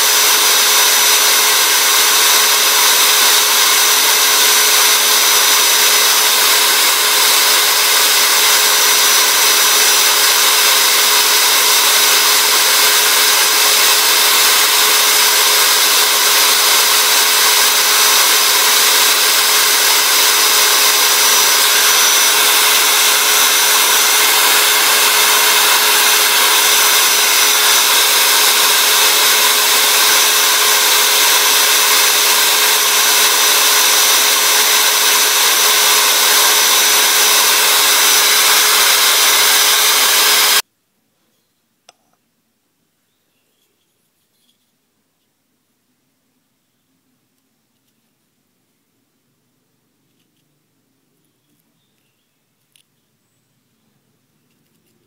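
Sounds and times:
abrasive grinding wood hiss: 0.0 - 40.6
rotary tool motor whine: 0.0 - 40.6.

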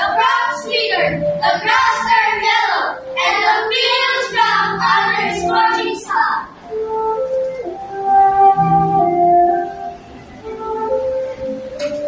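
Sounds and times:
children singing: 0.0 - 6.5.

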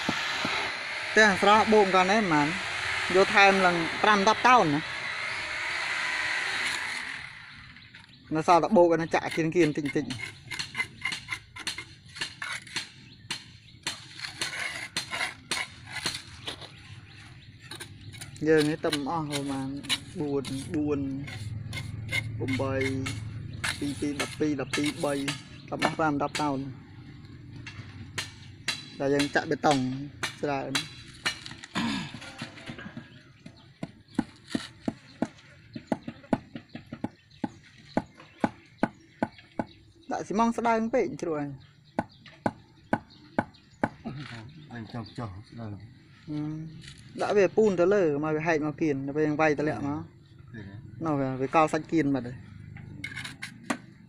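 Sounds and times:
tools scraping in mortar: 9.0 - 26.5, 30.2 - 36.4, 52.8 - 54.0
sharp taps on concrete blocks: 28.2 - 39.8, 42.0 - 44.0.

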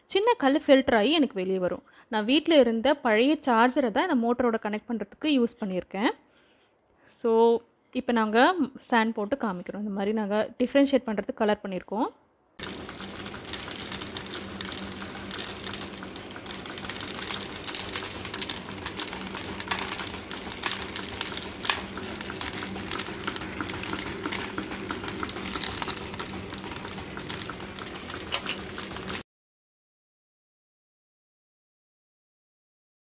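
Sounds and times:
balls rattling on cardboard tray: 12.6 - 29.2.

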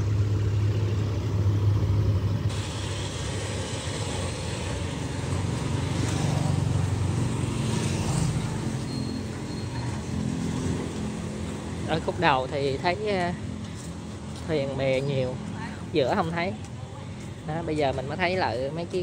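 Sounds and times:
motorbike and truck engines: 0.0 - 19.0
road rumble: 0.0 - 19.0.

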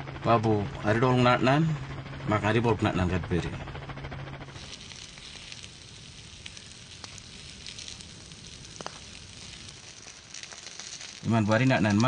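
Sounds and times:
grass fire crackling: 4.3 - 12.0
sharp pops: 4.6 - 12.0.

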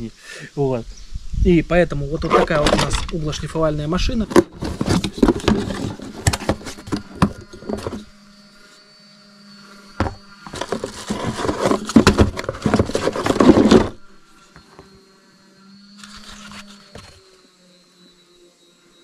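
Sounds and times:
rustling and clattering packaging: 2.2 - 3.2, 4.0 - 8.1, 10.0 - 14.1, 16.0 - 17.2.

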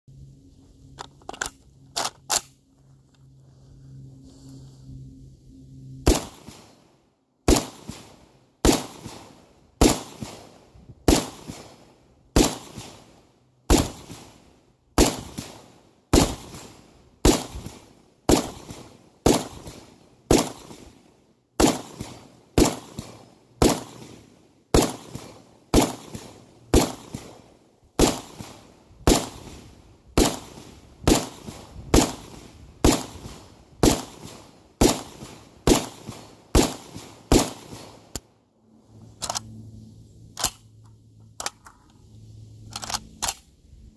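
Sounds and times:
rifle firing single shots: 6.1 - 6.7, 7.5 - 21.0, 21.6 - 38.2.

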